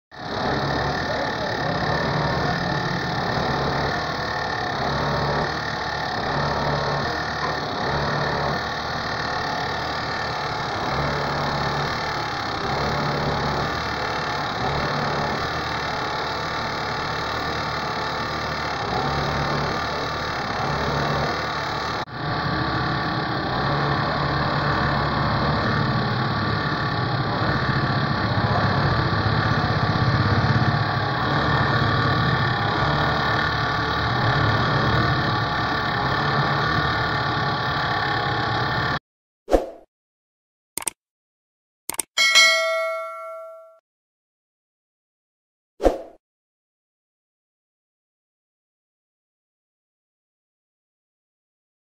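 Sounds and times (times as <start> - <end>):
sewing machine running: 0.1 - 39.0.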